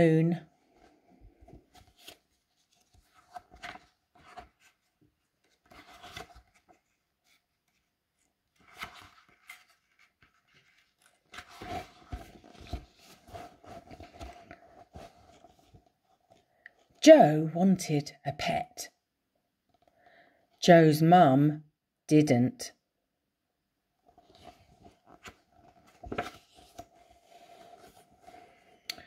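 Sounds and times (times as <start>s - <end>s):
book pages rustling: 0.7s - 17.0s, 24.0s - 28.9s.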